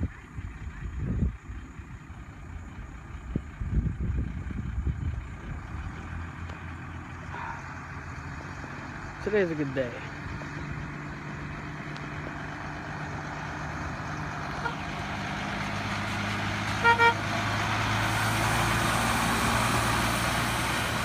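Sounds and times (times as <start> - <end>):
fire truck engine passing: 0.9 - 21.0
short horn toots: 16.8 - 17.2.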